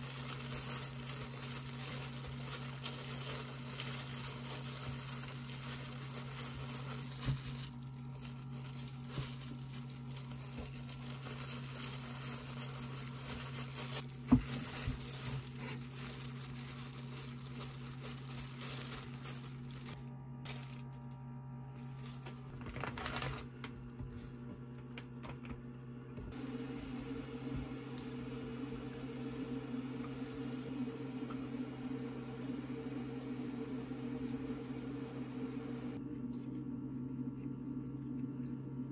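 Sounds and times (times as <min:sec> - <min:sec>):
plastic gloves crinkling: 0:00.0 - 0:25.2
steady low hum: 0:00.0 - 0:38.9.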